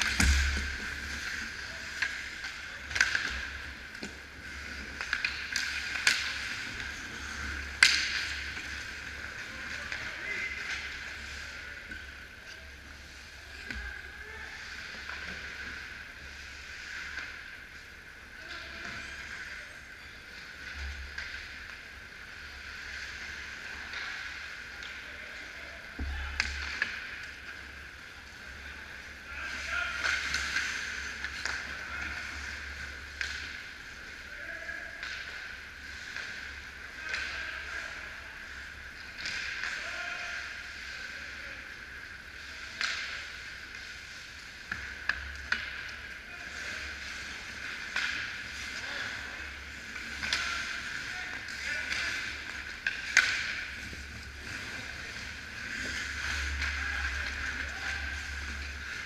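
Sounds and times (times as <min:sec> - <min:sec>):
hockey sticks and puck clacking: 0:00.0 - 0:17.8, 0:20.3 - 0:34.3, 0:34.9 - 0:59.0
skates scraping on ice: 0:42.6 - 0:59.0.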